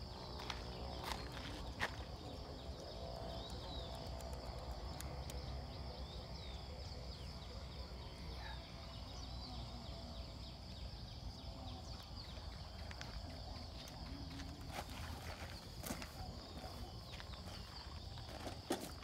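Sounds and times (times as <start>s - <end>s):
high insect drone: 0.0s - 19.0s.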